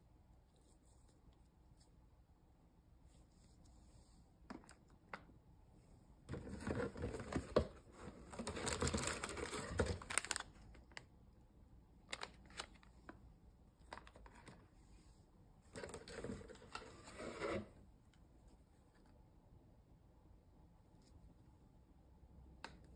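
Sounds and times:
rustling in cardboard box: 6.3 - 10.4
foil packaging crinkling: 8.3 - 11.0.

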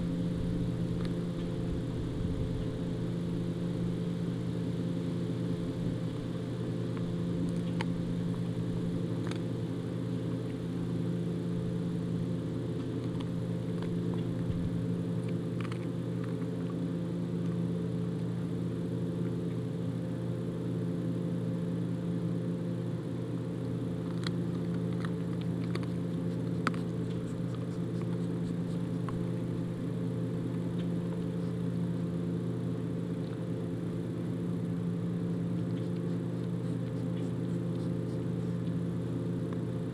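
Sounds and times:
low mechanical hum: 0.0 - 39.9
dog chewing bones: 5.9 - 18.4, 23.7 - 39.7.

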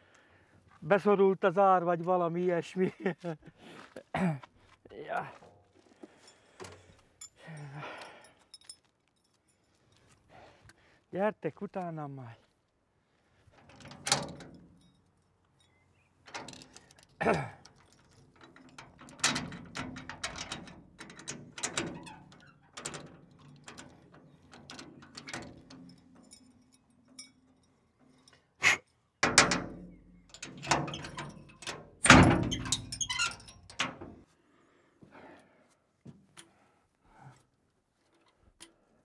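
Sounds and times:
key rattling in a padlock: 6.8 - 9.6, 13.6 - 28.5, 29.3 - 34.0
padlock clanking against metal door: 13.6 - 15.0, 16.2 - 28.4, 29.2 - 34.2.

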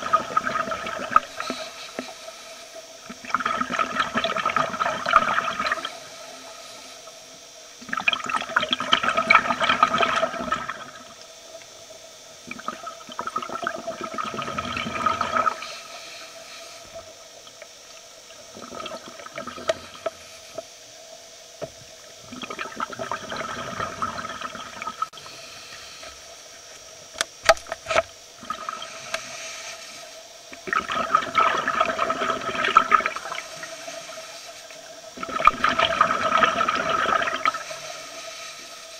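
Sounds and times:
exhaled bubbles underwater: 0.0 - 2.2, 2.8 - 15.8, 16.9 - 20.3, 21.4 - 25.4, 28.3 - 29.4, 30.2 - 38.9.

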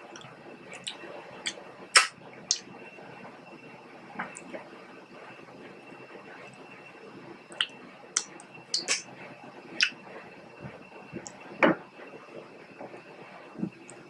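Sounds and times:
wet mouth clicks and smacks: 7.6 - 9.0.

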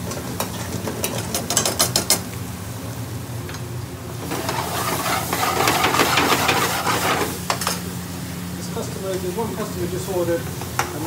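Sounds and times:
steady low hum: 0.0 - 11.0
food sizzling: 3.9 - 11.0
metal spoon scraping frying pan: 4.3 - 7.3.

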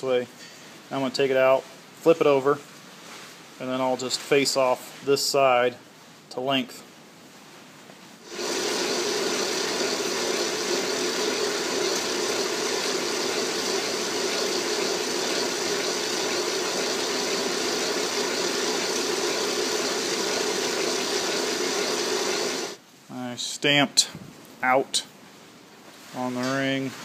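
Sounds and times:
lathe tool cutting steel: 8.3 - 22.8
metal lathe running: 8.3 - 22.8.

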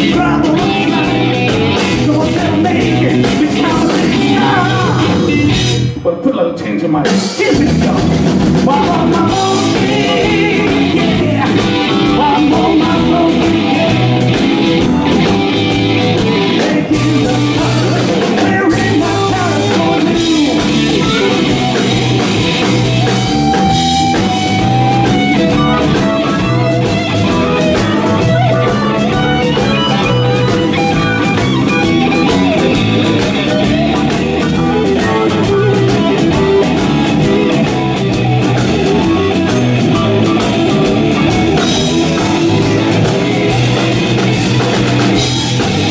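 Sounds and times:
man singing into microphone: 0.0 - 5.4, 6.0 - 14.2, 16.4 - 21.5
electric bass: 0.0 - 6.1, 7.0 - 45.9
electric guitar: 0.0 - 6.2, 7.0 - 45.9
drum kit: 0.0 - 45.9.

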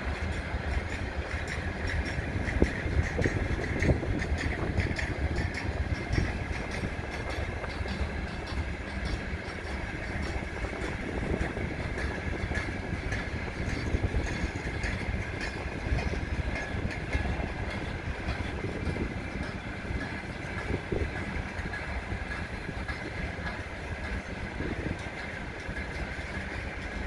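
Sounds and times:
train rumble: 0.0 - 27.0
train wheels clicking over rail joints: 0.0 - 27.0.

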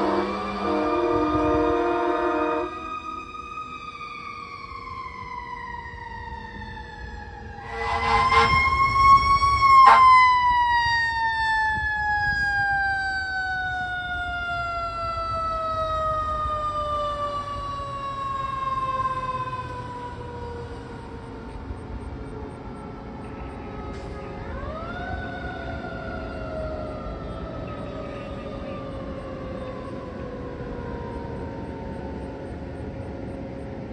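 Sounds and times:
loud horn blast: 0.0 - 2.9, 7.6 - 8.9, 9.8 - 10.2
fire truck siren wailing: 0.0 - 33.9.

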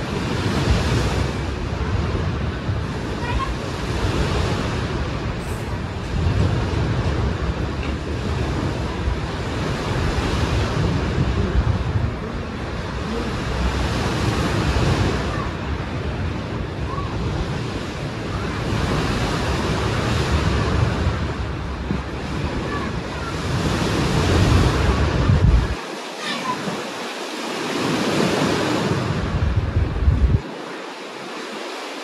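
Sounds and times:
sea surf washing onto shore: 0.0 - 32.0.

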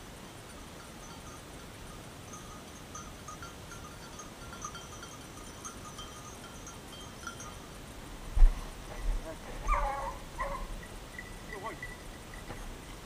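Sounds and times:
soft outdoor hiss: 0.0 - 13.0
dog bell tinkling: 0.5 - 7.9, 9.8 - 13.0
low thump: 8.4 - 8.6.

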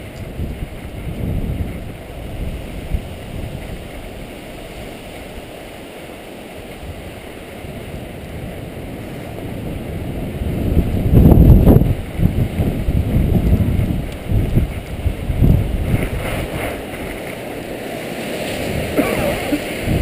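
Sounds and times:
wind rushing over microphone: 0.0 - 20.0
skis sliding over packed snow: 11.9 - 20.0.

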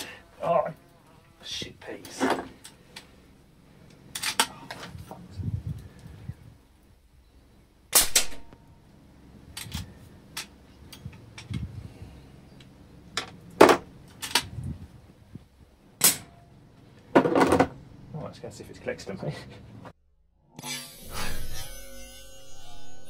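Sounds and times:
air rifle shots: 7.9 - 8.5.

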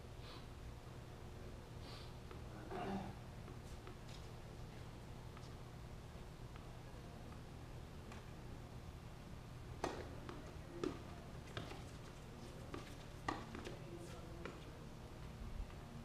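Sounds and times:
tennis balls struck by racquets: 9.8 - 11.9, 12.7 - 13.8.

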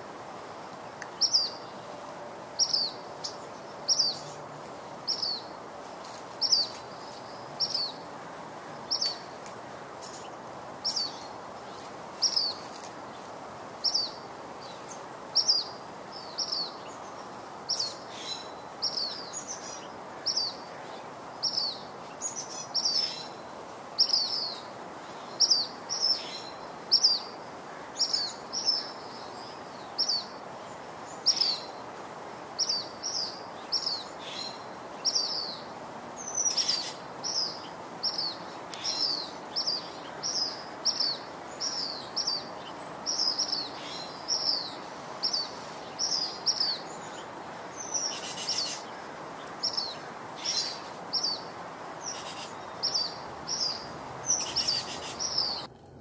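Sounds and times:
background hiss: 0.0 - 56.0
small bird chirping: 10.0 - 12.8, 36.2 - 55.7.

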